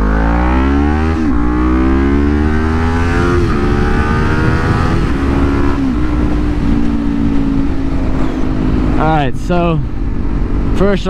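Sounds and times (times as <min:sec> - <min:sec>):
motorcycle engine accelerating: 0:00.0 - 0:11.0
wind rumble: 0:00.0 - 0:11.0.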